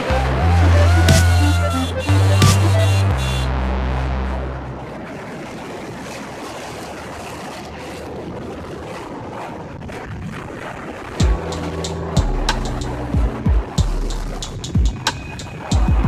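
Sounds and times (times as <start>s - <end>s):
electronic music with heavy beat: 0.0s - 4.0s, 11.2s - 16.0s
wind rushing on microphone: 4.7s - 12.2s.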